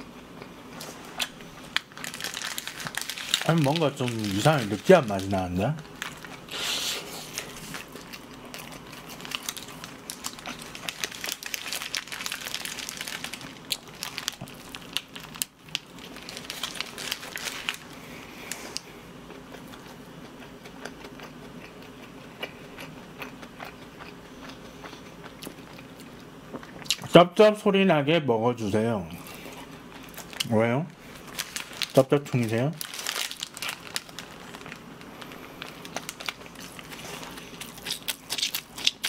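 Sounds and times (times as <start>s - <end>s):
paper wrapper crinkling: 1.2s - 6.5s, 7.2s - 18.8s, 30.0s - 39.0s
biting and chewing: 7.2s - 17.8s, 18.5s - 27.1s, 32.8s - 39.0s.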